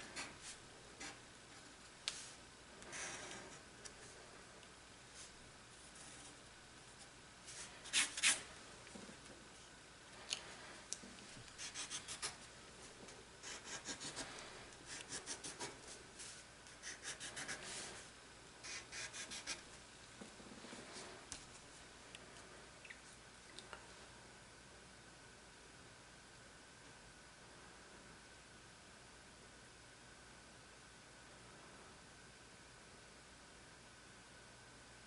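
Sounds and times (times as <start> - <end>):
pencil scratching on paper: 11.6 - 12.4, 13.4 - 14.3, 14.9 - 16.0, 16.8 - 18.0, 18.6 - 19.6.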